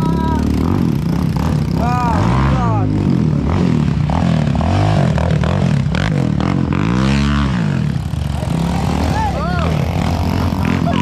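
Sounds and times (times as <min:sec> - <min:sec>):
atv engine revving: 0:00.0 - 0:11.0.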